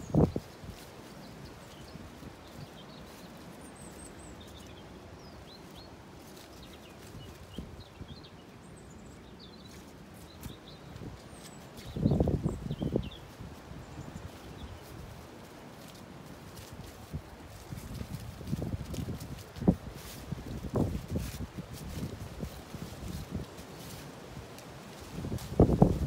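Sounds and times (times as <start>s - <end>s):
small birds chirping: 0.0s - 26.0s
wind hiss: 11.1s - 26.0s.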